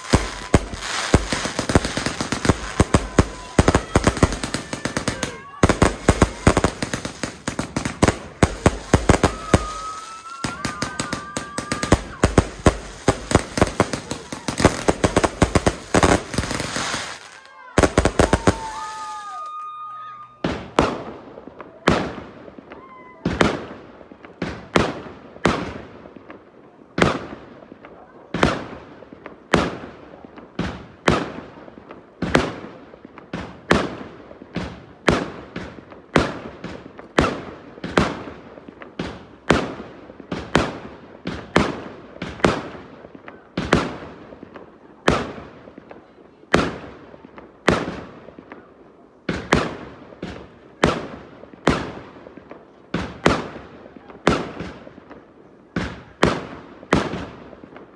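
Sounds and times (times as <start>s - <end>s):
fireworks bangs: 0.0s - 57.9s.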